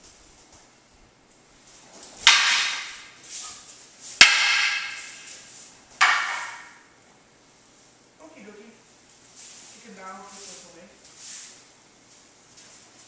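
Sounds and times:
wooden swords clacking: 0:02.0 - 0:06.8.

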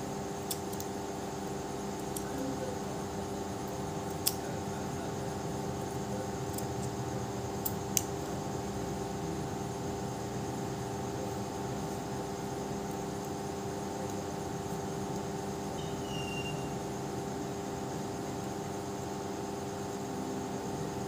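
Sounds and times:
steady mechanical hum: 0:00.0 - 0:21.0
scissors snipping yarn: 0:00.4 - 0:01.0, 0:02.0 - 0:02.4, 0:04.0 - 0:04.5, 0:06.4 - 0:08.2.

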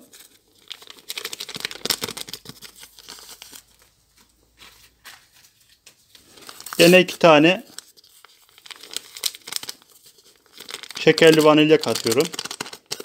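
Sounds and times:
sachet crinkling and tearing: 0:00.0 - 0:03.9, 0:06.1 - 0:13.0
sugar crackling onto plastic tub: 0:00.6 - 0:03.8, 0:06.4 - 0:13.0.

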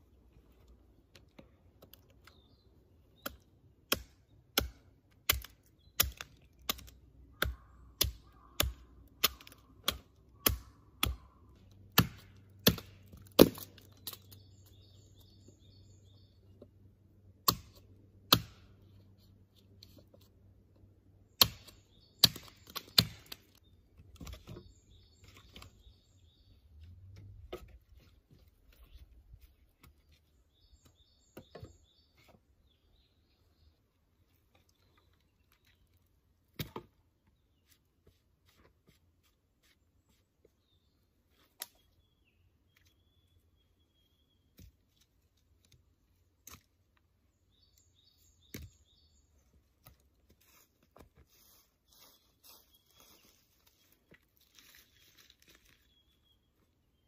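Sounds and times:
small birds chirping: 0:00.0 - 0:57.0
machete chopping wood: 0:03.2 - 0:11.3, 0:11.9 - 0:14.3, 0:17.4 - 0:18.8, 0:21.3 - 0:23.4, 0:36.5 - 0:36.9
sticks knocking and rustling: 0:21.5 - 0:25.9, 0:34.3 - 0:40.6.

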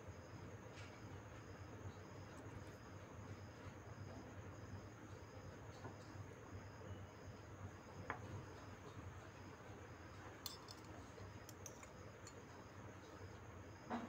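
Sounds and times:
spoon clicking on metal bowl: 0:10.4 - 0:12.4.

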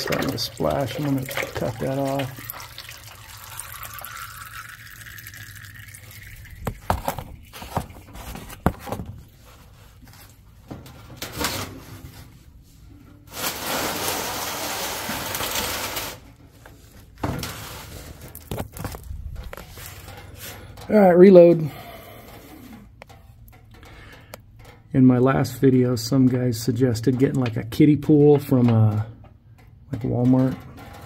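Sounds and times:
oil splashing into metal pan: 0:00.0 - 0:08.6
knocks and clatter of handling: 0:06.6 - 0:13.5, 0:16.4 - 0:21.5, 0:22.2 - 0:31.0.

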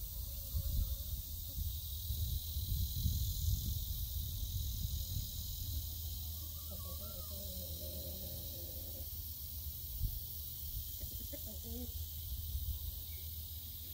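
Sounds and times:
wind rumbling on microphone: 0:00.0 - 0:06.0
steady high hiss: 0:00.0 - 0:13.9.

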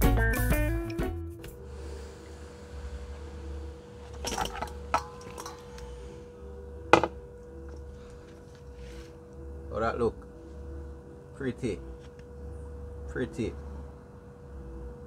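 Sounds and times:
steady low hum: 0:01.4 - 0:15.0
clicks and knocks on metal bowl: 0:04.2 - 0:05.8, 0:06.9 - 0:07.2.

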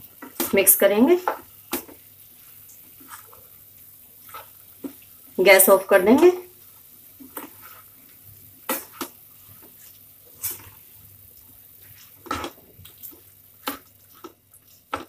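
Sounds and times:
spatula scraping a pan: 0:01.2 - 0:03.5, 0:04.2 - 0:05.0, 0:07.2 - 0:10.9, 0:11.7 - 0:15.0.

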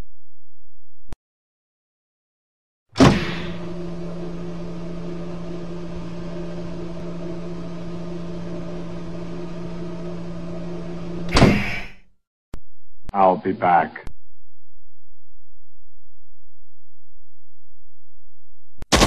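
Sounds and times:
low machine hum: 0:03.0 - 0:12.0.

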